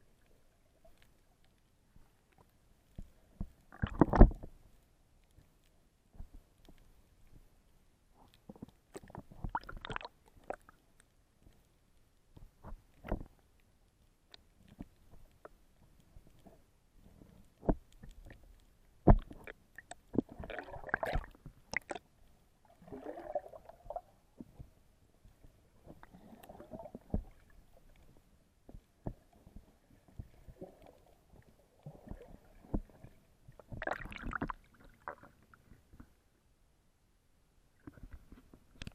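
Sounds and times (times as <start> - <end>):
underwater bubbling: 2.2 - 4.6, 8.6 - 10.8, 17.8 - 36.2
underwater knocks and clicks: 2.9 - 4.6, 8.4 - 10.7, 12.3 - 13.4, 17.2 - 22.0, 22.9 - 36.2, 37.8 - 38.9.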